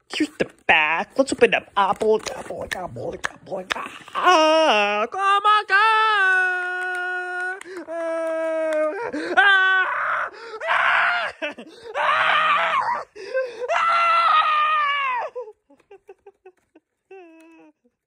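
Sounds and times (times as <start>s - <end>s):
person screaming: 3.8s - 15.6s.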